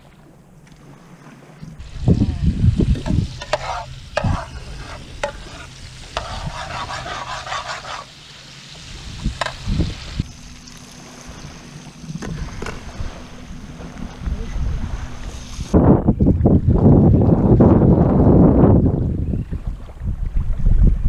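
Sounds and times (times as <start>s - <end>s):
oil sizzling: 1.8s - 11.8s.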